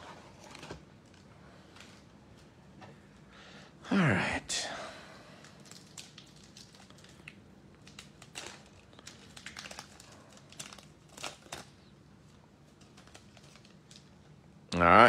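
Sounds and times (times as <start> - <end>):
wrapper tearing: 5.4 - 14.1
wrapper crinkling: 5.4 - 14.3.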